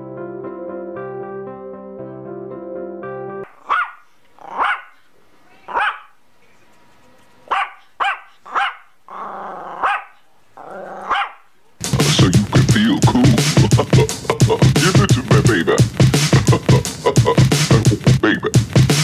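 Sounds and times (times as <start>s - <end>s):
piano-like music: 0.0s - 3.5s
small dog yapping: 3.5s - 6.2s, 7.5s - 11.5s
dog growling: 4.4s - 4.9s, 8.4s - 11.3s.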